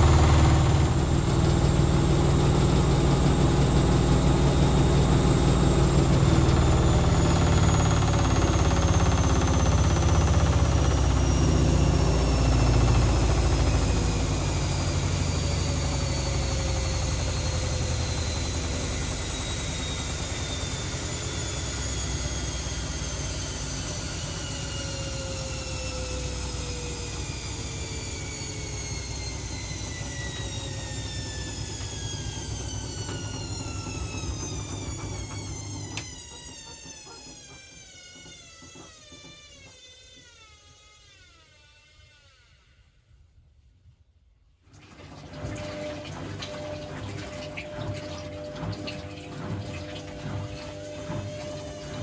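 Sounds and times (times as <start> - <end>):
washing machine motor whine: 0.0 - 42.6, 44.7 - 52.0.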